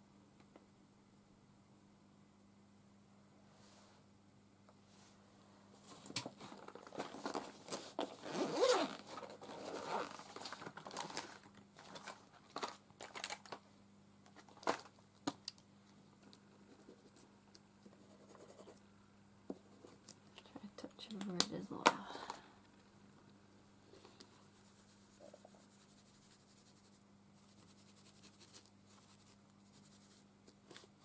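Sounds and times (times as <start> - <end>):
rustling through pencil case: 5.8 - 13.6
zip being pulled: 8.2 - 10.2.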